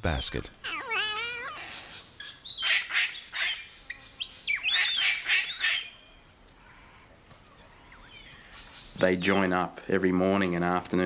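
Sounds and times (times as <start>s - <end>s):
cockatoo harsh calls: 0.6s - 6.0s.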